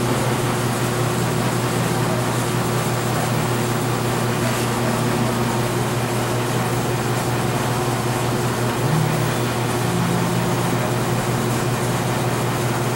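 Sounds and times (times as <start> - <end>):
fan hum and rushing: 0.0 - 12.9
low drone: 2.9 - 12.8
second hum tone: 8.6 - 12.9.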